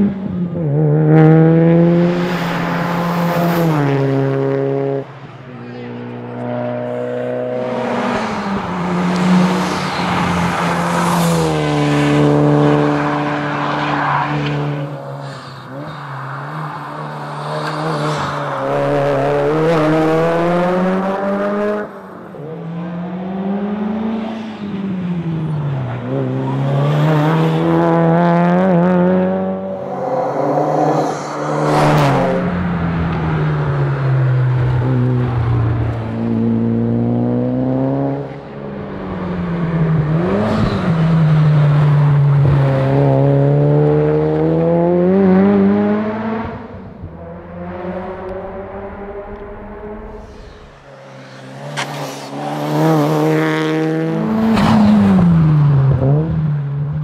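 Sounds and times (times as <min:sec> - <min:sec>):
rally car engine revving: 0:00.0 - 0:05.1, 0:05.7 - 0:57.0.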